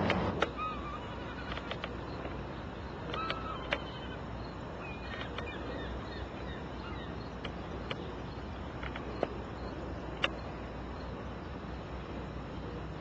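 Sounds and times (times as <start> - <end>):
background hiss: 0.0 - 13.0
sharp clicks: 1.4 - 2.4, 8.8 - 9.4.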